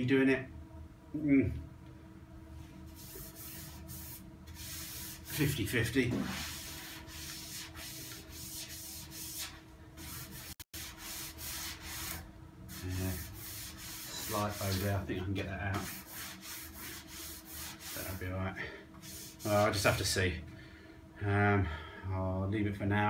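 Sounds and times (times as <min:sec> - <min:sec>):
gloved hands rubbing steel panel: 0:02.9 - 0:05.6, 0:06.2 - 0:15.0, 0:15.8 - 0:18.2, 0:19.0 - 0:19.8.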